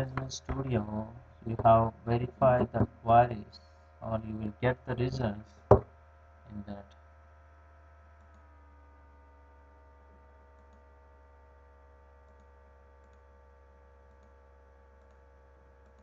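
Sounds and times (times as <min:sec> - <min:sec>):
low electrical hum: 0:00.0 - 0:16.0
computer mouse clicks: 0:10.6 - 0:10.8, 0:12.3 - 0:13.3, 0:14.1 - 0:14.4, 0:15.0 - 0:15.2.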